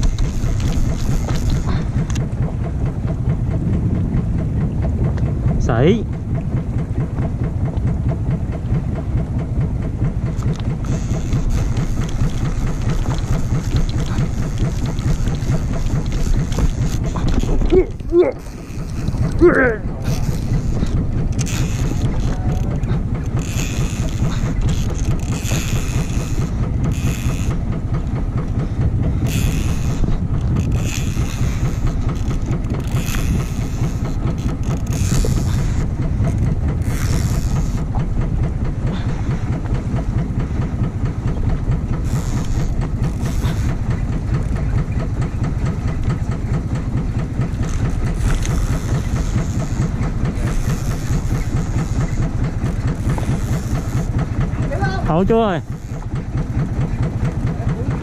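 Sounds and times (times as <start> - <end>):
boat engine running: 0.0 - 58.0.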